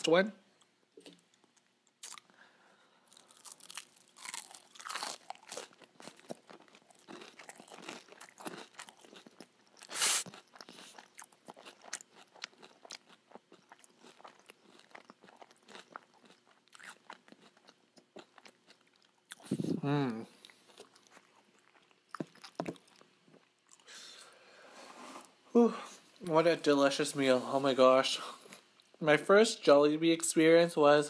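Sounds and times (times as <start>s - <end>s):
crunching and chewing pie: 3.1s - 19.6s, 20.3s - 23.9s.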